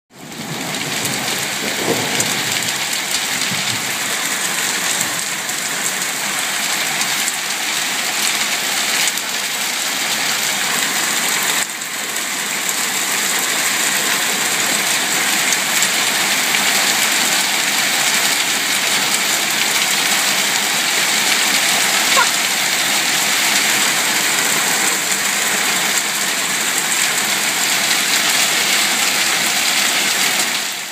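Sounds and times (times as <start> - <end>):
hailstones falling on ground: 0.3 - 6.3.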